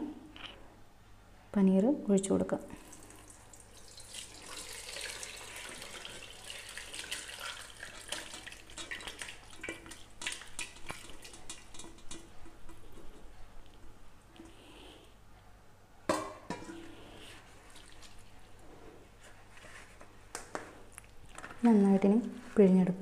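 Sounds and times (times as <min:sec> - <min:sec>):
liquid pouring and splashing: 0:02.8 - 0:13.0, 0:17.5 - 0:18.4.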